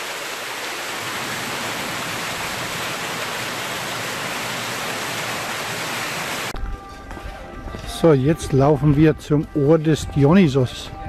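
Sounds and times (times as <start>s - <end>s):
spring water running: 0.0s - 6.6s.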